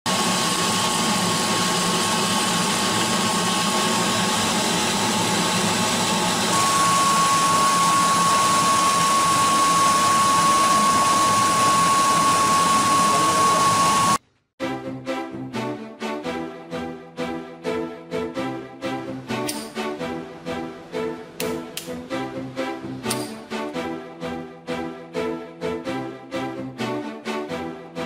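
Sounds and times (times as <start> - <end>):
vacuum fan rushing air and whine: 0.1 - 14.2.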